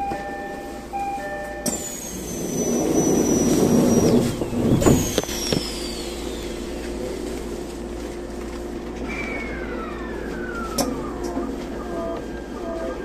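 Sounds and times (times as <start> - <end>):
electric train running noise: 0.0 - 13.0
high whines sliding down: 1.7 - 7.2, 9.0 - 12.7.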